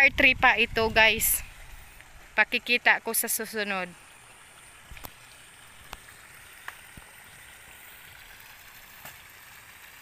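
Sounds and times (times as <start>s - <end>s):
water trickling into a field: 0.0s - 10.0s.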